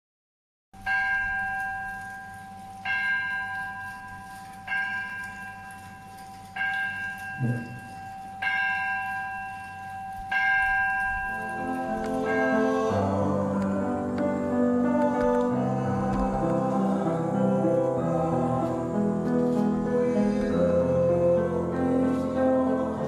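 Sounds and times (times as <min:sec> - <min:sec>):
bell tolling: 0:00.8 - 0:18.5.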